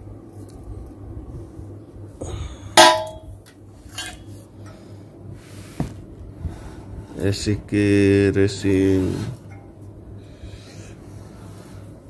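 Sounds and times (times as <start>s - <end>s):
metallic clang of muffler: 2.8s - 3.3s.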